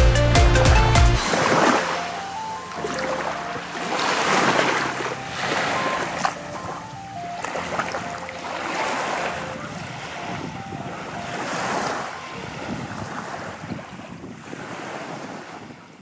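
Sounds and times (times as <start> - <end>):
small waves washing on sand: 1.2 - 16.0
wind buffeting microphone: 9.3 - 16.0.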